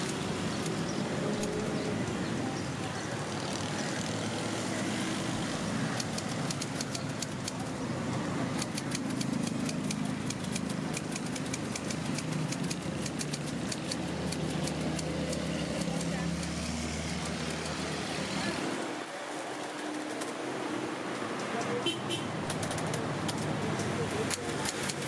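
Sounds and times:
road traffic hum: 0:00.0 - 0:25.0
typewriter keys clacking: 0:08.6 - 0:17.9.

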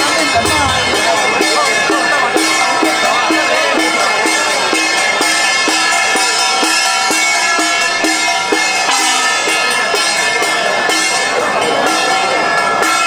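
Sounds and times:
sustained ringing tones: 0:00.0 - 0:12.6
drum beating steadily: 0:00.0 - 0:13.0
other percussion: 0:00.0 - 0:13.0.

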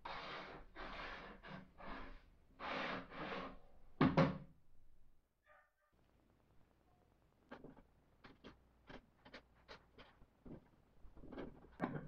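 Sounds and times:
wooden strip scraping saw table: 0:00.1 - 0:03.6.

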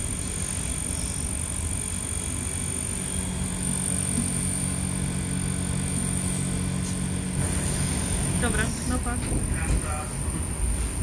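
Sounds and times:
train rumbling: 0:05.2 - 0:11.0.

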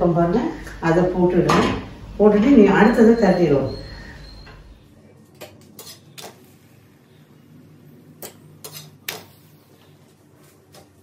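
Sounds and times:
spatula clicking on iron griddle: 0:08.2 - 0:09.4.

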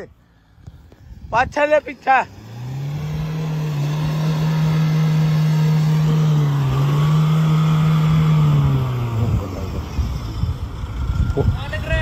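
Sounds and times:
engine revving high: 0:01.7 - 0:12.0.

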